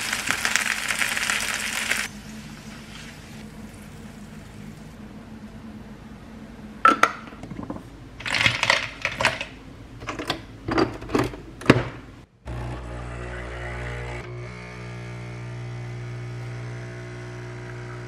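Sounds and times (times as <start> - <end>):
coffee machine pump humming: 12.5 - 18.0.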